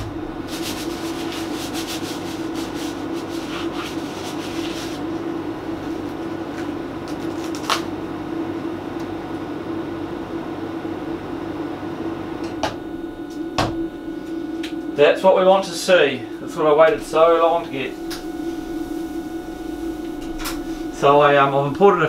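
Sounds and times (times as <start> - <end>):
steady low hum: 0.0 - 22.0
foam packing wrap crinkling: 5.9 - 7.9.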